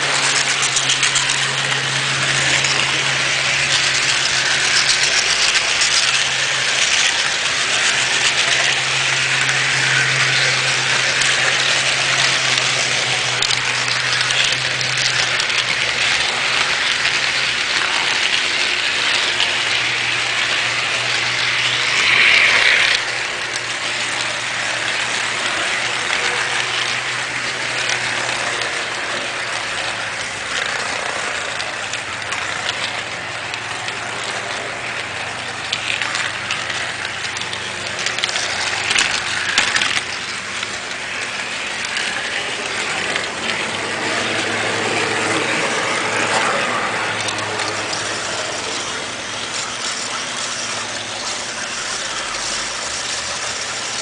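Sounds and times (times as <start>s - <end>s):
low motor hum: 0.0s - 54.0s
scattered clicks: 0.0s - 54.0s
small wheels rattling on rail: 0.0s - 54.0s.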